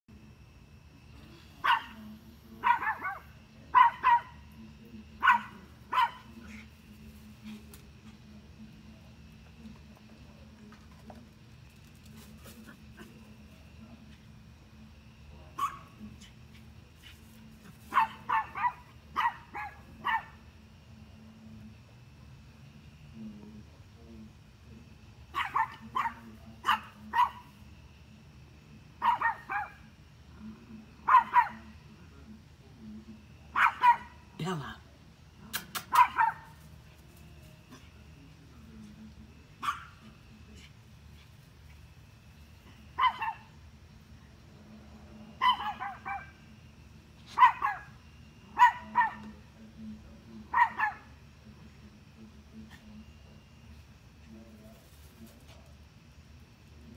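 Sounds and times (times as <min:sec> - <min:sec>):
small dog barking: 0:01.6 - 0:04.6, 0:05.2 - 0:06.7, 0:15.6 - 0:16.0, 0:17.6 - 0:20.5, 0:25.3 - 0:27.6, 0:29.0 - 0:29.9, 0:31.0 - 0:31.7, 0:33.5 - 0:34.3, 0:35.8 - 0:36.6, 0:39.6 - 0:40.1, 0:42.9 - 0:43.6, 0:45.4 - 0:46.4, 0:47.3 - 0:49.4, 0:50.5 - 0:51.2.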